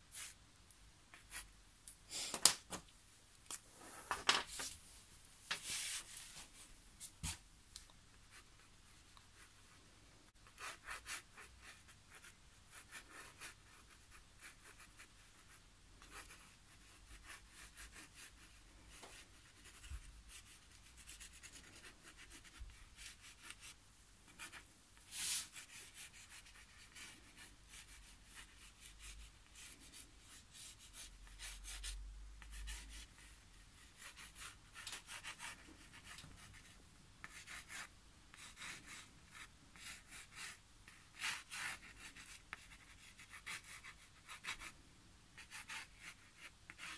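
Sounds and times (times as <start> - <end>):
pen scratching on paper: 10.4 - 44.7, 45.4 - 46.9.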